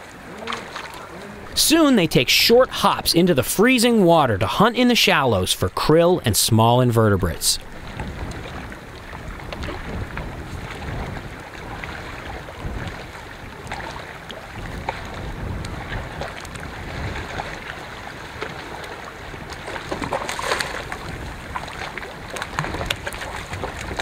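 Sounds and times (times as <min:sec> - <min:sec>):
water lapping on rocks: 0:00.0 - 0:24.0
wind buffeting microphone: 0:07.6 - 0:24.0.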